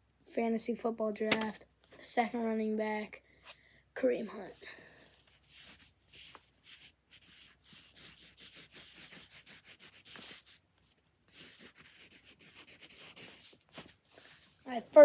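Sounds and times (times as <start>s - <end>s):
pencil scratching on paper: 5.4s - 10.6s, 11.3s - 13.8s.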